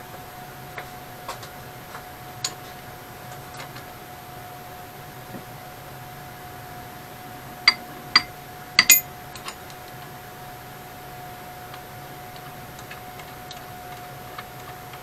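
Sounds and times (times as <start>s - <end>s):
faint steady hum: 0.0s - 15.0s
wrench clinking on metal: 7.7s - 9.6s.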